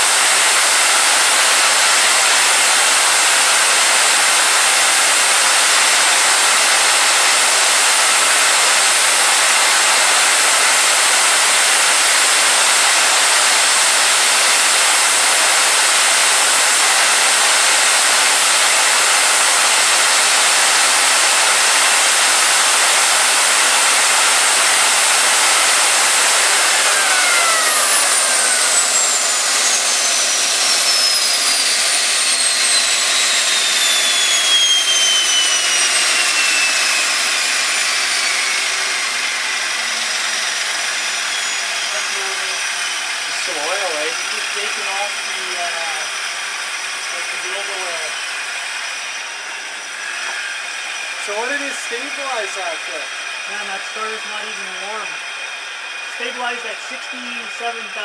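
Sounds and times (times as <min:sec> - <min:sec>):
turbine jet rush and whine: 0:00.0 - 0:58.0.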